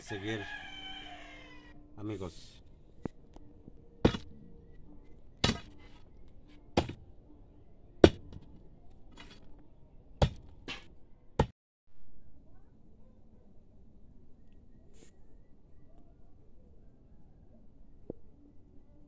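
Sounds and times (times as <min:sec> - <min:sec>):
digging tool striking rock: 0:04.0 - 0:04.3, 0:05.4 - 0:06.0, 0:06.8 - 0:07.0, 0:08.0 - 0:08.4, 0:10.2 - 0:11.5.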